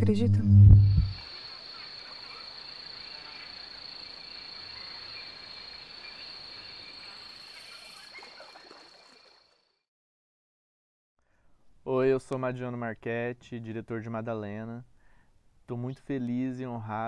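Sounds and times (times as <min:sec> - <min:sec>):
high-pitched insect chorus: 0:00.8 - 0:09.7
soft outdoor hiss: 0:11.2 - 0:17.0.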